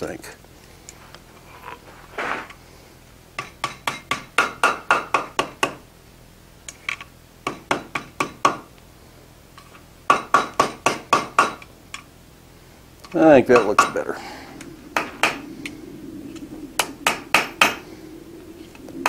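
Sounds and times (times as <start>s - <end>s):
hammer striking hot steel on anvil: 3.4s - 5.8s, 7.4s - 8.6s, 10.1s - 11.7s, 13.4s - 14.1s, 16.8s - 17.8s.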